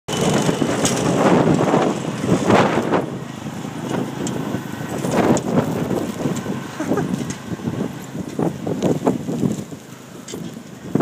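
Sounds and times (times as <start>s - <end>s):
garden tractor engine: 0.1s - 11.0s.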